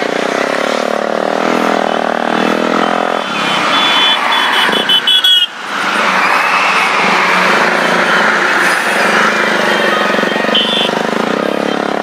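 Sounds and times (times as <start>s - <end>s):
wind and road rumble: 0.0s - 12.0s
quick high beeps: 2.0s - 5.2s.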